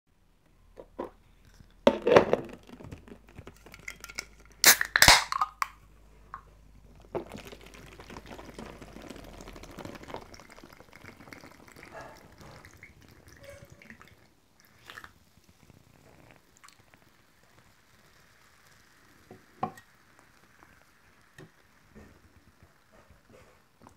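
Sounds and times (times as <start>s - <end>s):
can cracking open with hiss: 1.5s - 6.4s
fizzy soda pouring over ice: 2.5s - 5.7s, 6.8s - 22.9s.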